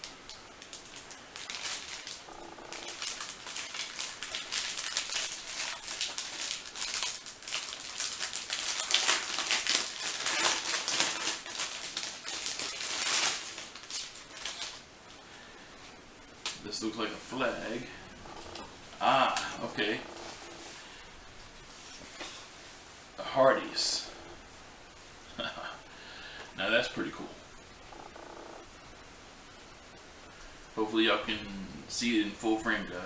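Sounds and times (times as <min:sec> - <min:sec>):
plastic bag crinkling: 0:00.0 - 0:14.9.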